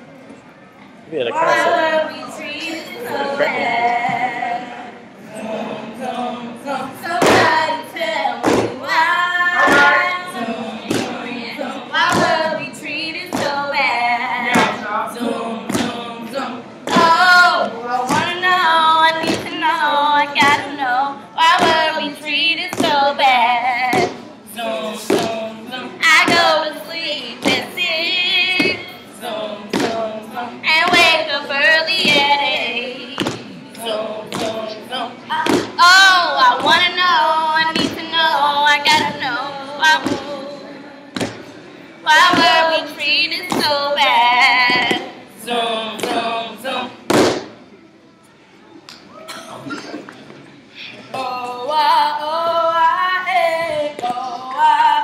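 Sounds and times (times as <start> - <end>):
women singing together: 1.3 - 47.5, 51.1 - 55.0
women chanting in unison: 1.4 - 41.0.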